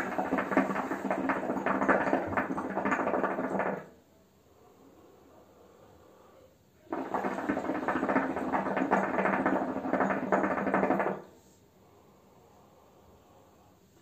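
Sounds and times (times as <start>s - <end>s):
hookah water bubbling: 0.0s - 3.9s, 6.8s - 11.2s.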